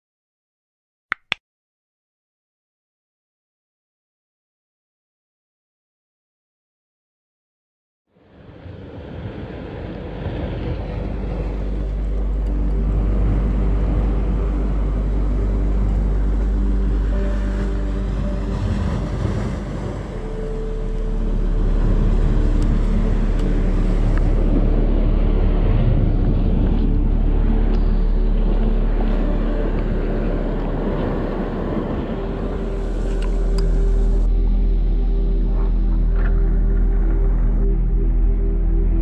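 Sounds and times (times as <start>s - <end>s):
wind rumbling on microphone: 8.2s - 39.0s
boat engine running: 9.9s - 39.0s.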